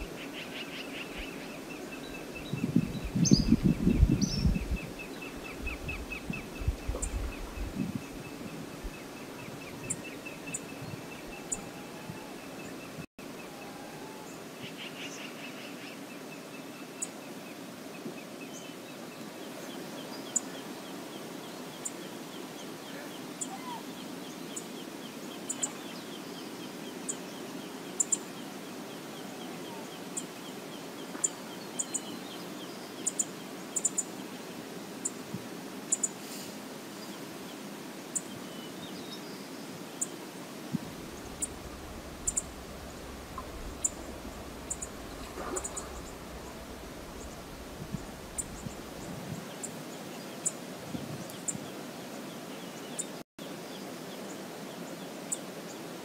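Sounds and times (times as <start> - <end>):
steady low rush: 40.8 - 49.3
bird chip notes: 40.9 - 49.0.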